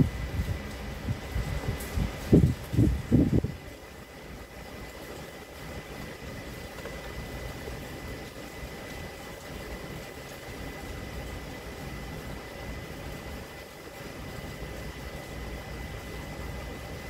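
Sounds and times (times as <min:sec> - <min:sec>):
air conditioning ventilation: 0:00.0 - 0:17.0
faint high whine: 0:00.0 - 0:17.0.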